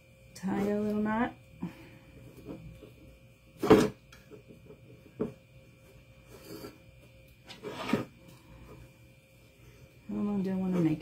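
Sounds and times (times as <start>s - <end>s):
twine rubbing across pan: 4.7s - 11.0s.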